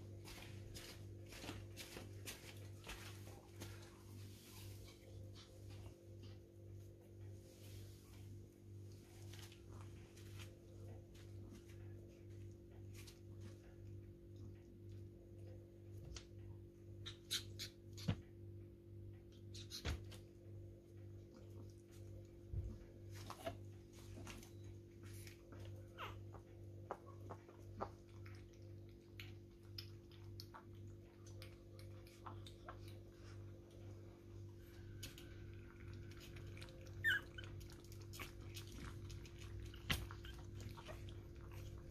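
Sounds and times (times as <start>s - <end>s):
steady low hum: 0.0s - 41.9s
puppy squeaking: 37.0s - 37.6s.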